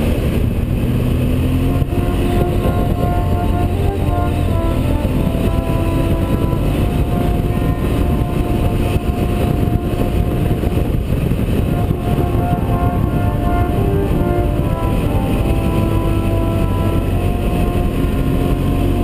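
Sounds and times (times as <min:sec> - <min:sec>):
motorcycle engine running: 0:00.0 - 0:19.0
wind rumble on microphone: 0:00.0 - 0:19.0.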